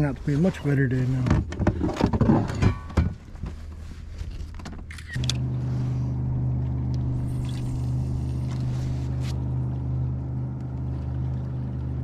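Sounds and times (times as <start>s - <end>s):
low motor hum: 4.9s - 12.0s.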